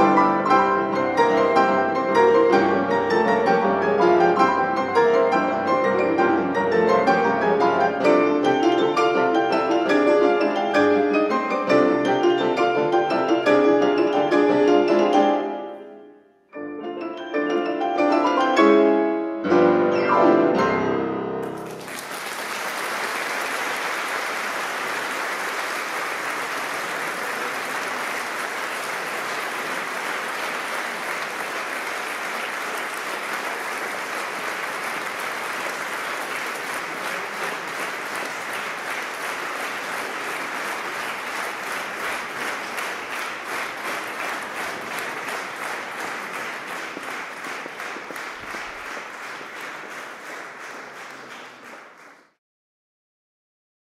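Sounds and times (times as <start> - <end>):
pianos playing loud chords: 0.0 - 21.9
audience applause: 21.6 - 52.4.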